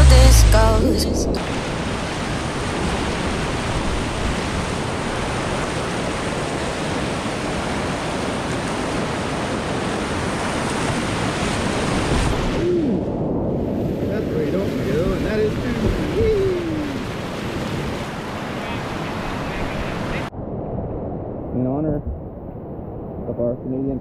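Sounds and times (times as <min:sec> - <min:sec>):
whitewater rapids rushing: 0:01.4 - 0:12.8, 0:14.1 - 0:20.3.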